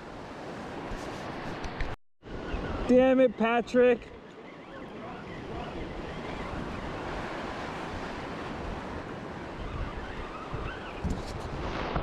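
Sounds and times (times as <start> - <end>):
ocean surf washing against rocks: 2.8 - 12.0
wind buffeting microphone: 4.0 - 12.0.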